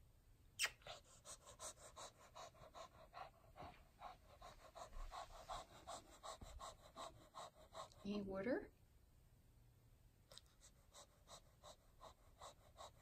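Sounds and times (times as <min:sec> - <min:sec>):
dog panting rapidly: 0:00.8 - 0:08.3, 0:10.6 - 0:13.0.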